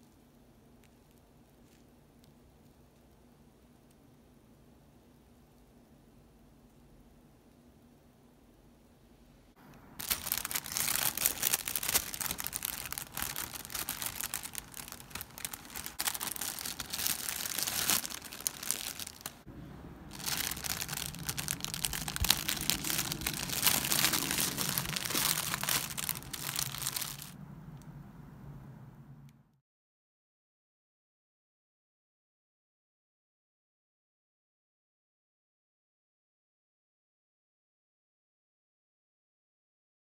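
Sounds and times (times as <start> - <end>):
cellophane bag crinkling: 10.0 - 19.5, 20.1 - 27.4.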